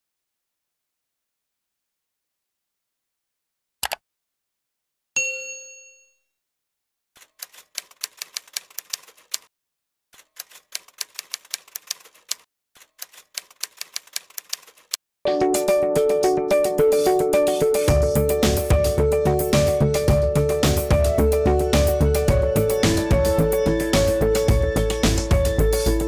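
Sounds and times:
typewriter bell ding: 5.2s - 6.3s
music: 15.3s - 26.0s.

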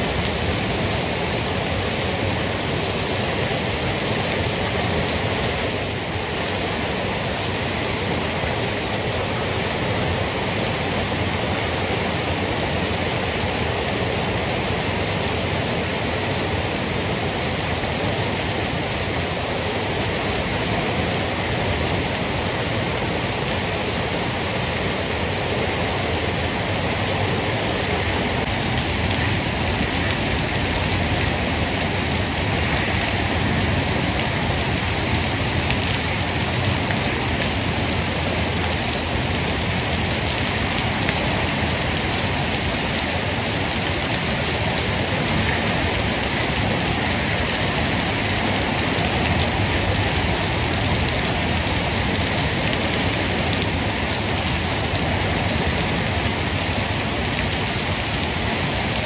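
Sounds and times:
heavy rain on paved ground: 0.0s - 59.0s.

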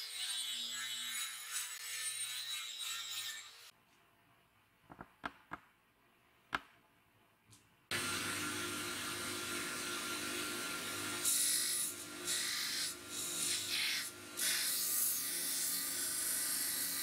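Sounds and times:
belt grinder motor running: 7.9s - 14.9s.

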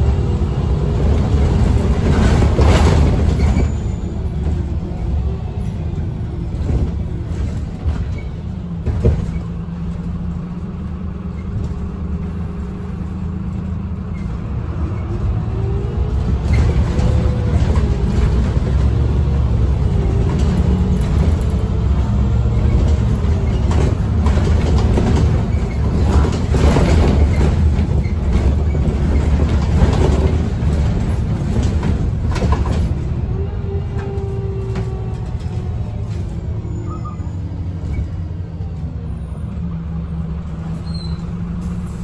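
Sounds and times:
bus diesel engine rumble: 0.0s - 42.0s
body rattles and knocks: 22.3s - 33.2s.

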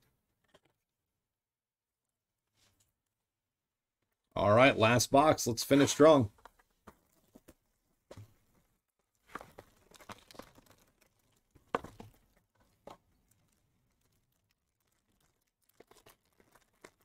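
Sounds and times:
foil wrapper tearing and crinkling: 9.4s - 17.0s.

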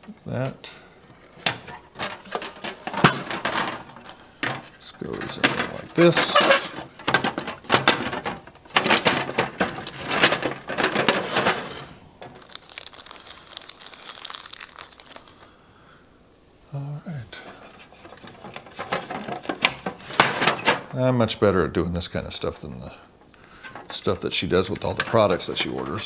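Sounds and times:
plastic bag crinkling: 1.9s - 15.7s.

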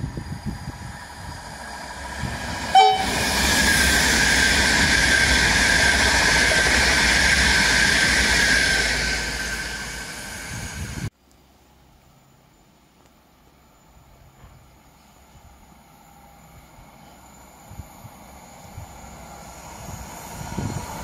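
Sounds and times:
train rushing past: 0.0s - 11.1s, 15.3s - 21.0s
train horn blast: 2.7s - 3.3s.

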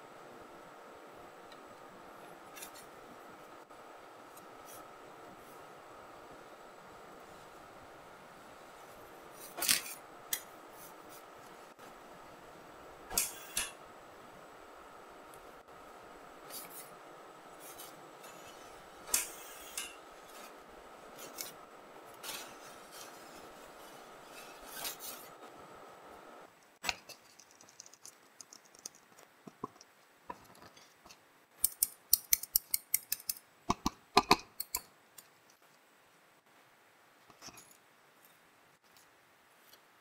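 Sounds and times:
faint steady hum: 0.0s - 40.0s
steel spatula scraping cold plate: 17.6s - 20.6s.

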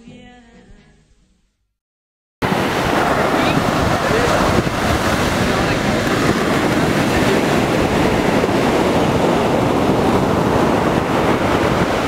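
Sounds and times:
ocean waves breaking on shore: 2.4s - 12.0s
wind buffeting microphone: 2.4s - 12.0s.

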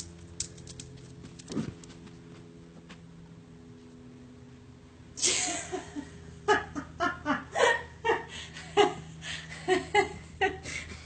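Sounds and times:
person laughing: 5.2s - 11.0s.

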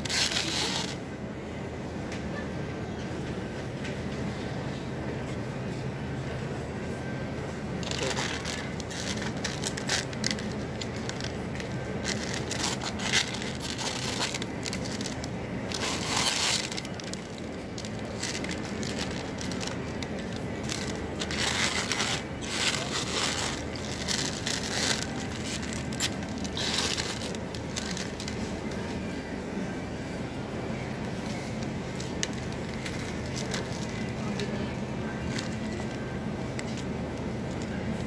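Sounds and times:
plastic wrappers crinkling: 0.0s - 1.0s, 7.8s - 28.8s, 31.2s - 38.0s
low background hum: 0.0s - 38.0s.

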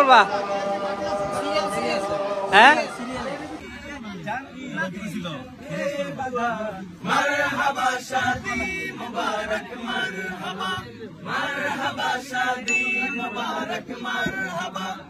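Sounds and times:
men singing in unison: 0.0s - 3.6s.

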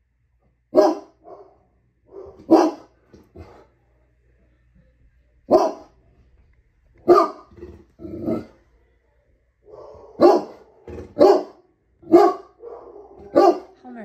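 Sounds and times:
large dog barking: 0.7s - 3.7s, 5.5s - 6.0s, 7.0s - 8.6s, 9.6s - 13.8s
dog growling: 7.4s - 8.6s.

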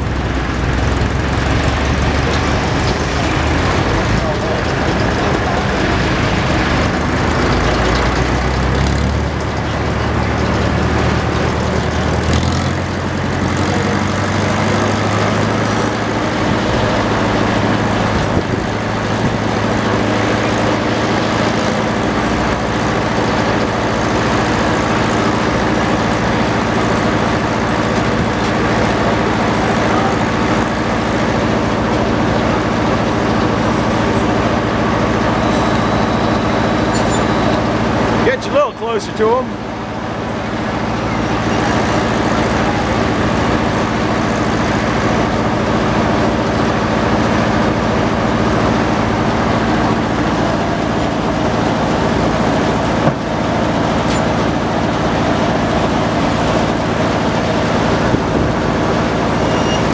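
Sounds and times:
engine running steadily: 0.0s - 59.9s.

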